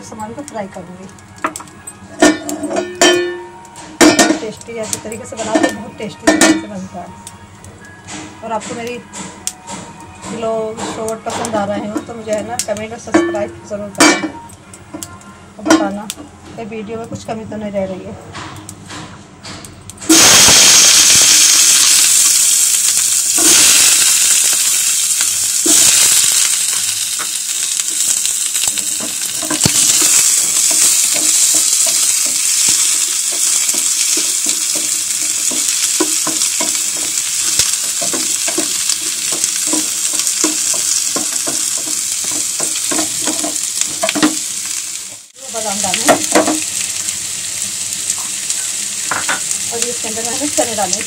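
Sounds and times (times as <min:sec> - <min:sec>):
onions sizzling in hot oil: 0:04.0 - 0:07.1, 0:20.1 - 0:51.0.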